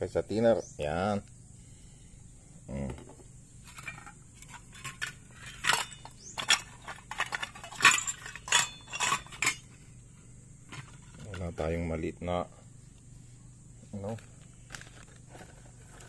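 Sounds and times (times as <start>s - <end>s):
metal parts clinking in steel bowl: 3.7s - 9.7s.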